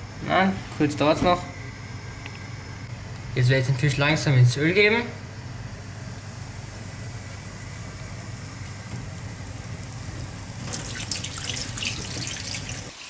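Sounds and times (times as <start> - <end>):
fish frying in oil: 6.3 - 13.0.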